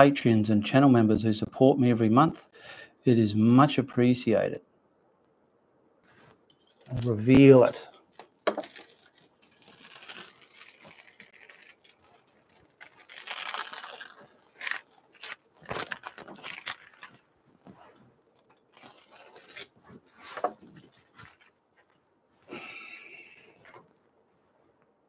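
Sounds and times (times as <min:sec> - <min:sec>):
tape ripping and crinkling: 0:08.0 - 0:22.0.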